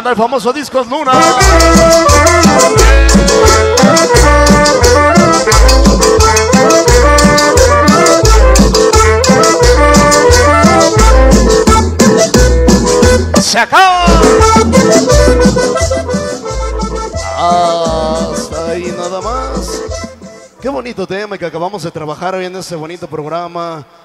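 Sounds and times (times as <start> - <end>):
loud dance music over sound system: 1.0 - 21.0
heavy bass beat: 1.1 - 20.8.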